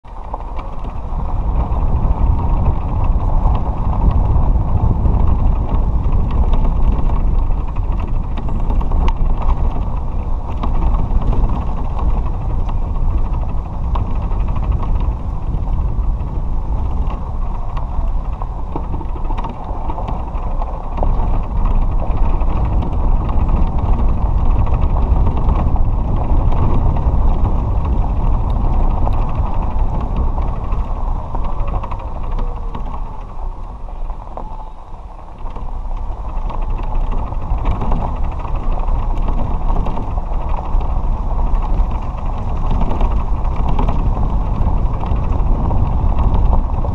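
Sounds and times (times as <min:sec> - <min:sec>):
cart body creaking and rattling: 0:00.0 - 0:46.9
cart tyres rumbling on gravel: 0:00.0 - 0:46.9.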